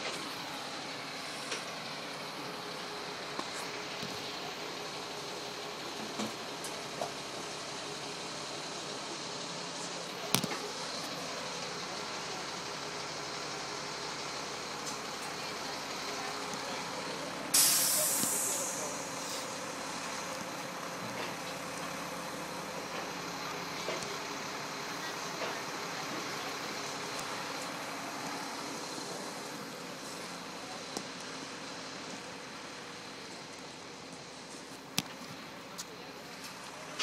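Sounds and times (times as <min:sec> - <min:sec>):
diesel truck engine idling: 0:00.0 - 0:37.0
air brakes hissing: 0:17.5 - 0:19.6.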